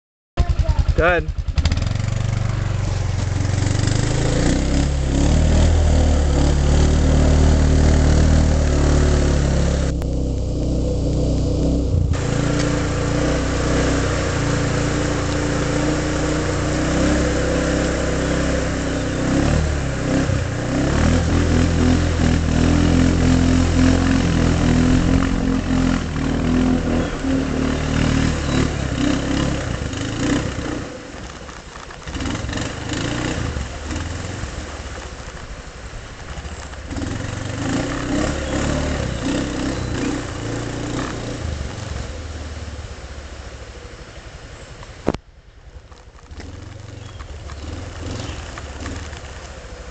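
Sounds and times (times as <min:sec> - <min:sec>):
quad engine running under load: 0:00.4 - 0:34.3, 0:36.6 - 0:41.6
water splashing from wheels: 0:00.4 - 0:49.9.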